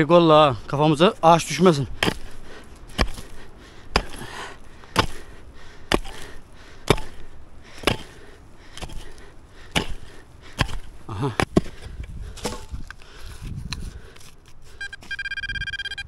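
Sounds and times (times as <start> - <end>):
chopping blows into wood: 2.0 - 5.3, 5.9 - 11.8, 12.4 - 12.8.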